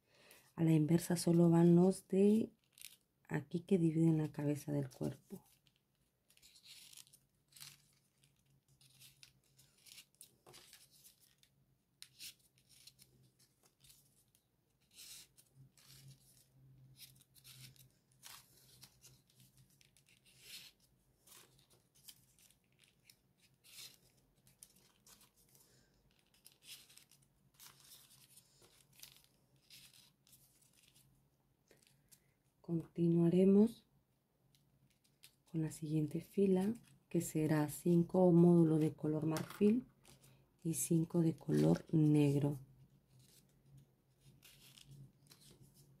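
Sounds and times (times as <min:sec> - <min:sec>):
paper rustling and crinkling: 0:02.6 - 0:03.0, 0:04.2 - 0:32.3, 0:34.8 - 0:35.5, 0:38.7 - 0:40.4, 0:41.3 - 0:46.0.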